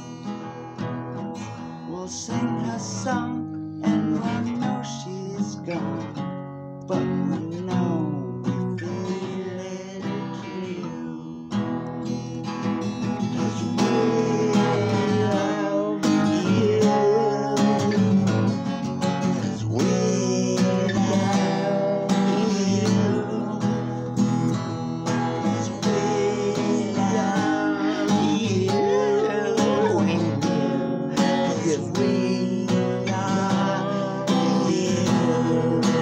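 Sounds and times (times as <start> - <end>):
acoustic guitar strumming chords: 0.0 - 36.0.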